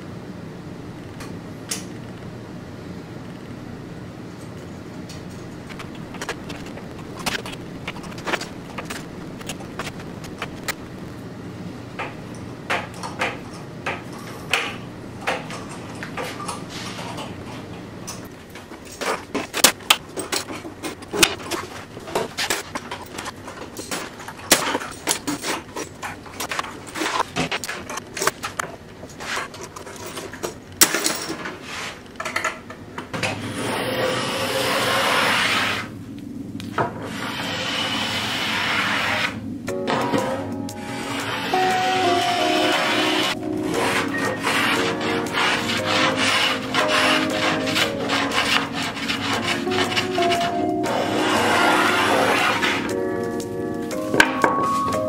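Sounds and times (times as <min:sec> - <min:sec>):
block plane shaving wood: 0:33.6 - 0:35.9, 0:37.1 - 0:39.4, 0:41.0 - 0:52.9.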